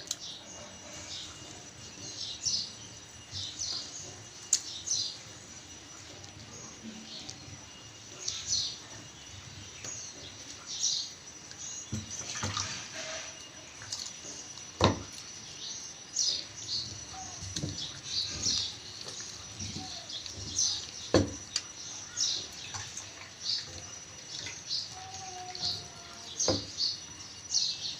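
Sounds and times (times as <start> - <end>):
sharp knocks: 21.1 - 21.4.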